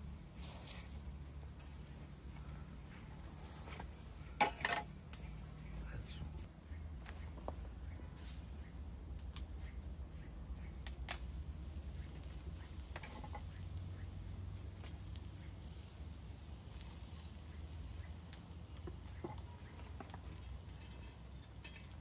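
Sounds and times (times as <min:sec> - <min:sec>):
metal skewers clicking and scraping: 0:00.3 - 0:05.4, 0:10.8 - 0:13.9, 0:18.3 - 0:22.0.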